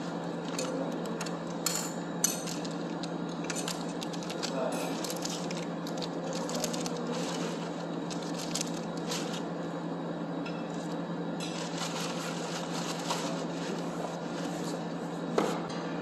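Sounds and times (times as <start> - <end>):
steady hum: 0.0 - 16.0
plastic sachets rustling: 2.5 - 9.4.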